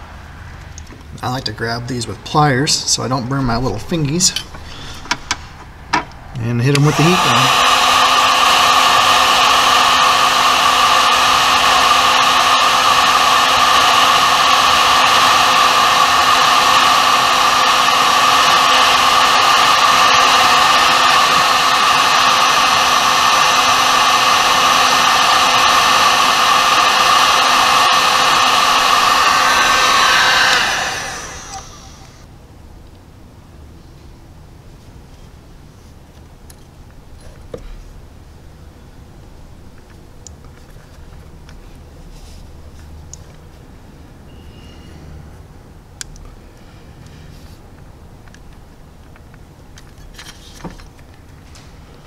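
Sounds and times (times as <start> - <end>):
fan winding down: 0.6 - 32.3
heat gun blowing: 6.7 - 32.3.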